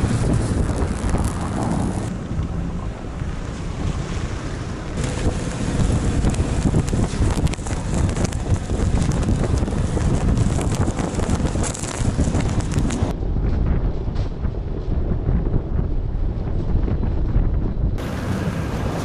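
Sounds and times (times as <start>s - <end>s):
tyres churning snow: 0.0s - 13.1s, 18.0s - 19.0s
wind buffeting microphone: 0.0s - 19.0s.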